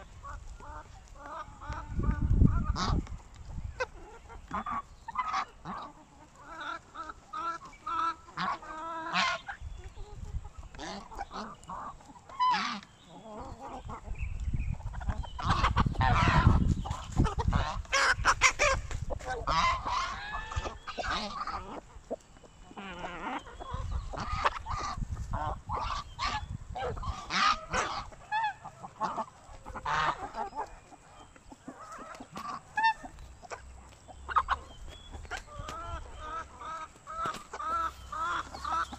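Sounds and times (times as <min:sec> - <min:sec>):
chickens clucking: 0:00.0 - 0:38.9
geese honking: 0:03.8 - 0:09.7, 0:10.5 - 0:14.0, 0:14.9 - 0:38.9.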